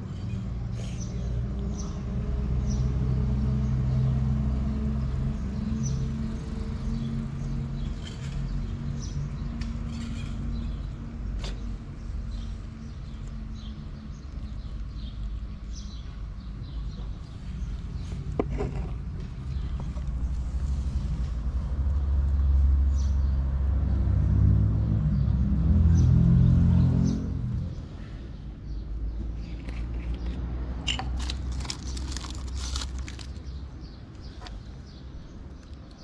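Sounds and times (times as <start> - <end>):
small birds chirping: 0.1 - 2.1, 5.0 - 23.4, 26.8 - 30.4, 31.1 - 36.0.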